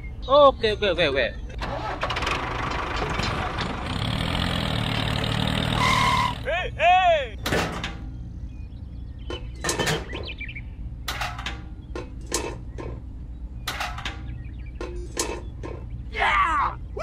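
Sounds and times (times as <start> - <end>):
low steady hum: 6.0 - 17.0.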